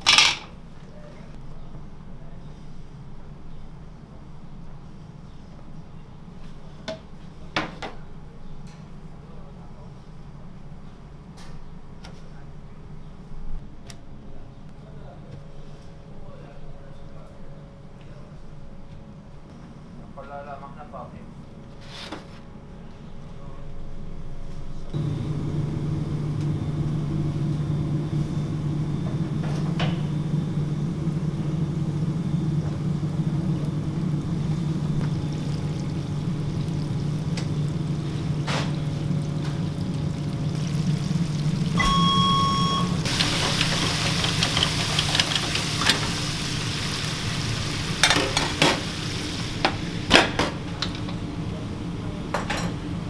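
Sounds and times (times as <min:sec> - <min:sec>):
low kitchen machine hum: 0:00.0 - 0:53.0
chicken frying in hot oil: 0:31.0 - 0:50.2
short electronic beep: 0:41.8 - 0:43.1.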